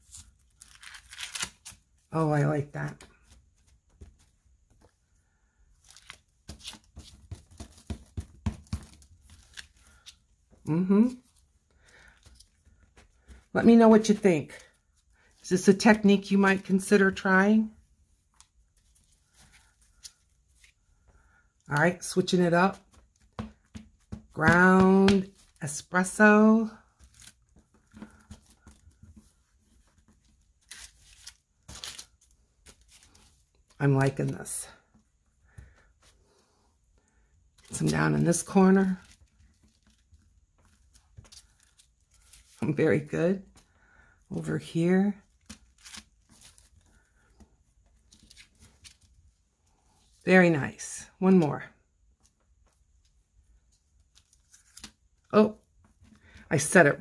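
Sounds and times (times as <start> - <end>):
paper rustling: 21.8 - 34.4, 37.6 - 42.8, 45.3 - 49.1.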